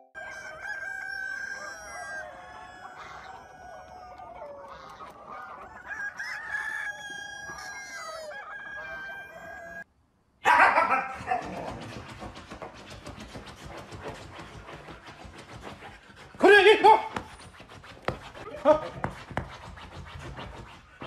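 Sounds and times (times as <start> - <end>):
hens clucking: 0.1 - 9.9, 10.5 - 17.3
roosters crowing: 0.1 - 9.9
dog scratching fabric cushion: 11.2 - 21.0.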